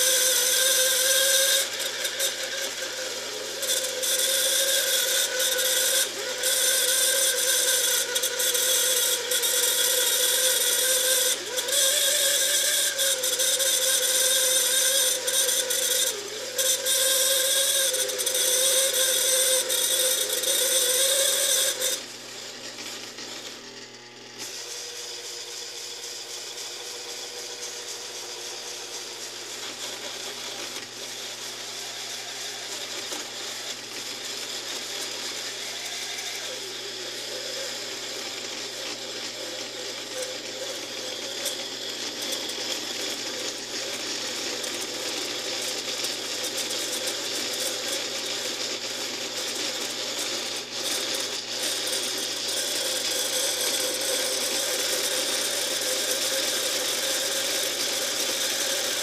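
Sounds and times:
lathe tone: 0.0 - 59.0
lathe tool cutting steel: 0.0 - 59.0.

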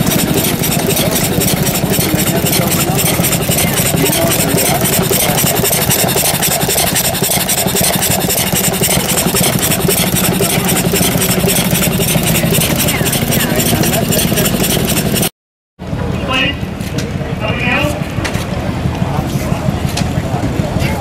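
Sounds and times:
engine running with fast beat: 0.0 - 16.1, 18.1 - 21.0.

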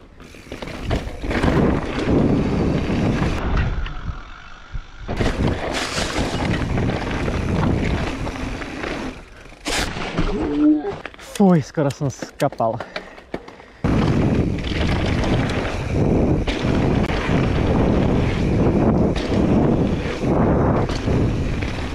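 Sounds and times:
bike tyres on loose dirt: 0.0 - 21.9
wind rushing over microphone: 0.9 - 9.2, 13.8 - 21.9.

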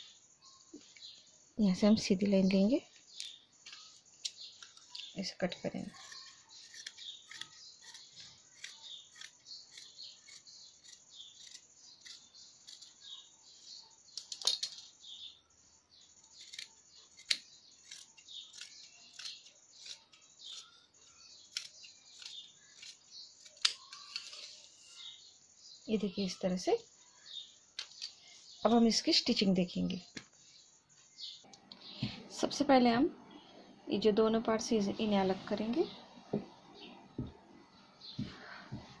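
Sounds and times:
scissors clicks: 6.0 - 12.9, 16.3 - 20.7, 21.5 - 24.4.

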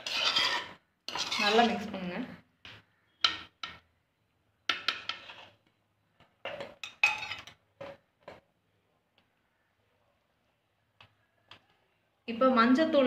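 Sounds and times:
metal spoon clinking on pot: 6.5 - 7.6.

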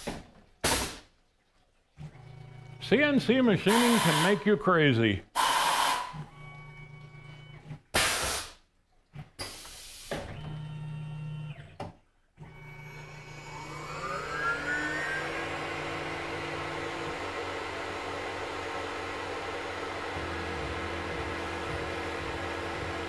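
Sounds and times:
tool changer blasts: 3.6 - 4.5, 5.4 - 6.2
coolant spray hiss: 3.7 - 4.4
low machine motion hum: 12.4 - 23.0
spindle whine: 12.4 - 23.0.

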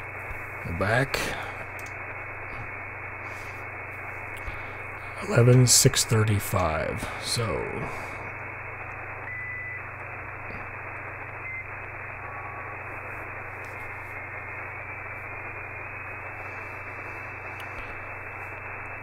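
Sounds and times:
low hum: 0.0 - 19.0
radio static hiss: 0.0 - 19.0.

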